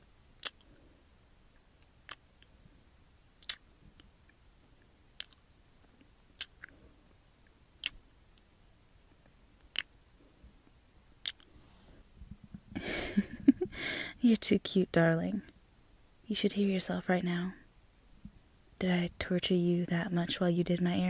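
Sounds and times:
wet kissing smacks: 0.4s - 0.7s, 3.4s - 3.6s, 5.2s - 5.4s, 6.4s - 6.7s, 7.8s - 8.0s, 9.7s - 9.9s, 11.2s - 11.5s.

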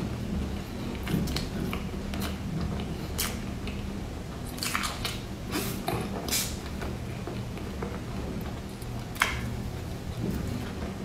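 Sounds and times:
biting and chewing bread: 0.0s - 10.7s.

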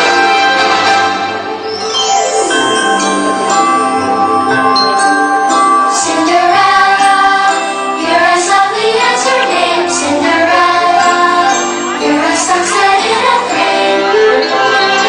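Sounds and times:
orchestral backing music: 0.0s - 15.0s
female and children's voices singing: 5.9s - 15.0s.

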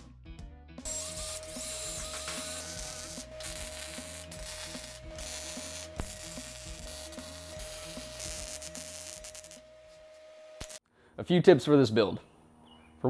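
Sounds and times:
background music with bass line: 0.0s - 9.4s
arc welding crackling hiss: 0.9s - 10.8s.

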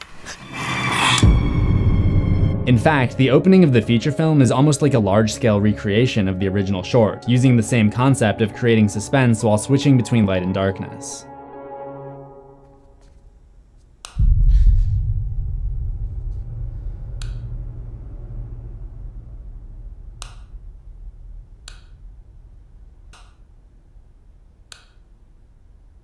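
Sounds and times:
deep low boom: 1.2s - 4.3s, 14.2s - 26.0s.

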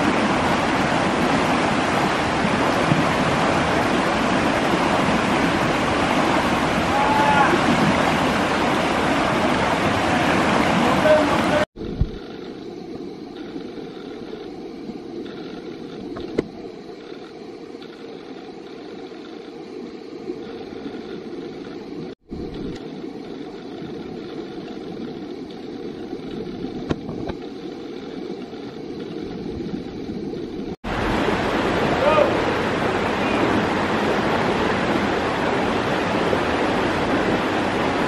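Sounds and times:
river flowing over rocks: 0.0s - 11.7s, 30.9s - 38.0s.

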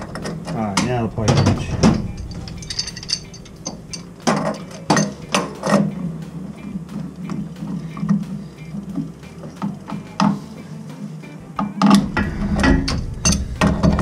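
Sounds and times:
low steady hum: 0.0s - 14.0s
pipe wrench clicking on metal: 11.8s - 14.0s.

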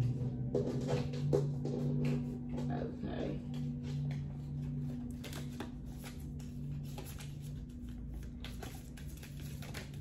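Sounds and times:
cards being shuffled: 4.0s - 10.0s.

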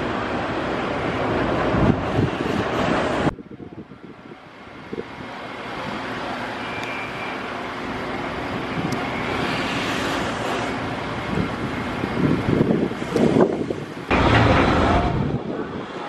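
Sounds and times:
wind on microphone: 1.2s - 5.3s, 8.6s - 16.0s
distant engine rumble: 7.5s - 16.0s.

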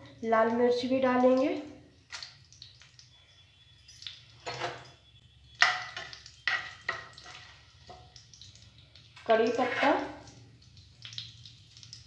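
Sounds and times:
spoon scraping and knocking a pan: 4.4s - 5.0s, 5.6s - 8.1s.

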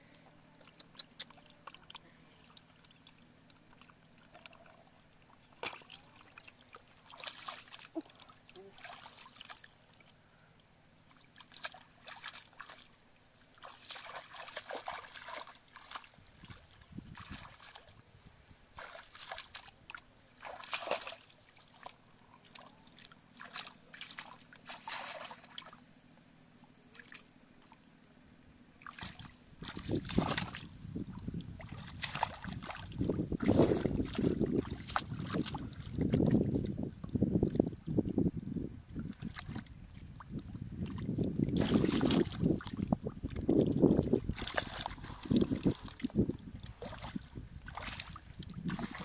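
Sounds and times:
hands splashing in muddy water: 5.5s - 9.7s, 11.4s - 12.9s, 13.6s - 17.9s, 18.8s - 25.8s, 28.8s - 36.7s, 39.1s - 49.0s.

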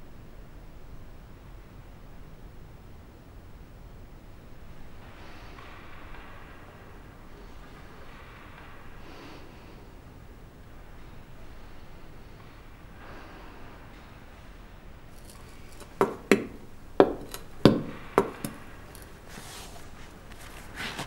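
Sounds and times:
skate blades knocking on floor: 5.0s - 9.5s, 15.1s - 21.0s.

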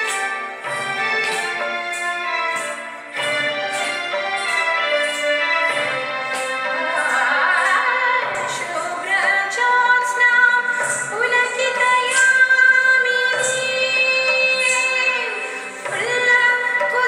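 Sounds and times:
instrumental accompaniment: 0.0s - 17.0s
woman singing: 6.6s - 17.0s.

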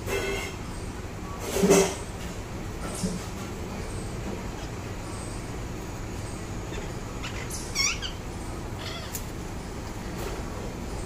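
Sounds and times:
parakeet calling: 6.2s - 9.8s.

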